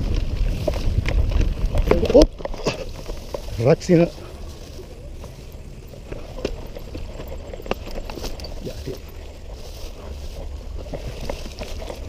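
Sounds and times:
bike clicks and rattles: 0.0s - 12.0s
wind buffeting microphone: 0.0s - 12.0s.

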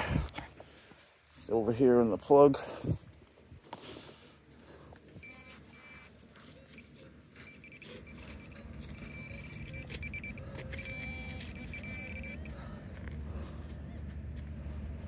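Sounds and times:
pinpointer high alert tone: 5.2s - 12.6s.

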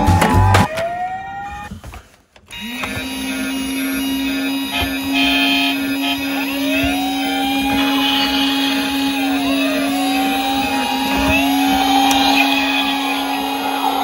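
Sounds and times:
toy sirens wailing: 0.0s - 14.0s.

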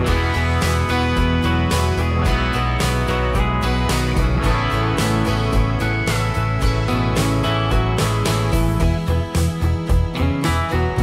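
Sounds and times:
guitar music with strummed beat: 0.0s - 11.0s.

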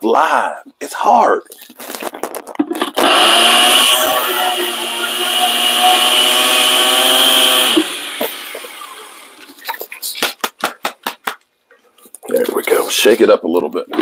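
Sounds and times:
blender motor grinding: 2.8s - 9.6s.

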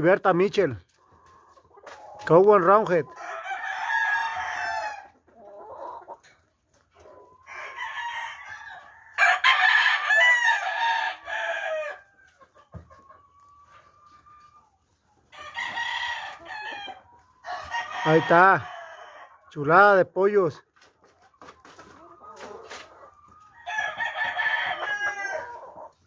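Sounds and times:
roosters crowing: 3.1s - 6.0s, 7.4s - 12.2s, 15.3s - 19.4s, 22.1s - 25.9s.

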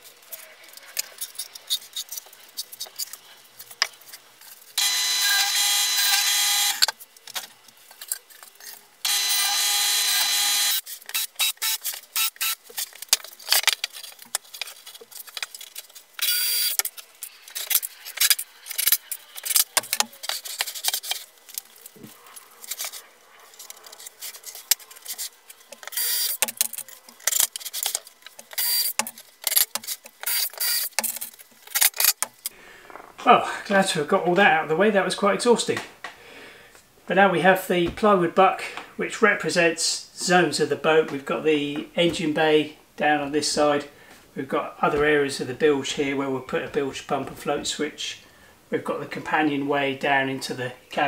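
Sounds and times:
cordless drill driving screws: 4.8s - 6.9s, 9.0s - 12.6s, 16.2s - 16.9s, 28.6s - 29.0s, 29.6s - 31.0s
power tool motor running: 4.8s - 6.9s, 9.0s - 12.6s, 16.2s - 16.9s, 28.6s - 29.0s, 30.3s - 31.0s
loose screws rattling: 22.6s - 32.5s.

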